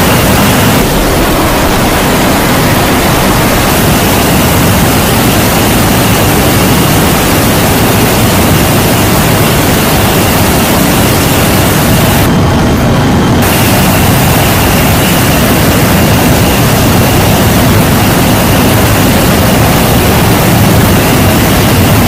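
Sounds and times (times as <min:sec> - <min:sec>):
jet engines roaring in cargo hold: 0:00.0 - 0:22.0
airflow hiss: 0:13.4 - 0:22.0.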